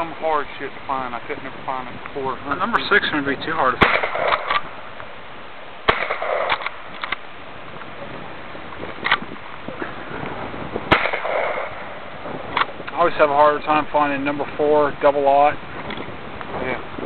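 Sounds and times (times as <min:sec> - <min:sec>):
shotgun blasts: 0:03.7 - 0:04.8, 0:05.8 - 0:07.2, 0:10.9 - 0:12.7.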